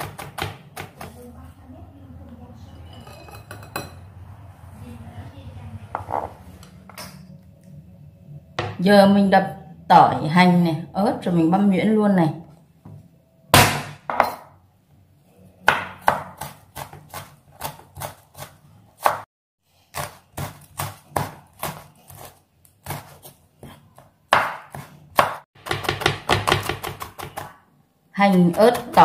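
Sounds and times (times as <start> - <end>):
knife chopping on cutting board: 15.6 - 19.2, 19.9 - 27.6.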